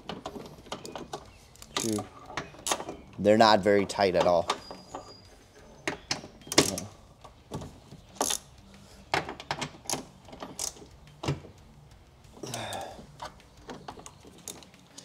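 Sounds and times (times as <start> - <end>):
ratchet wrench clicking: 8.1 - 15.0.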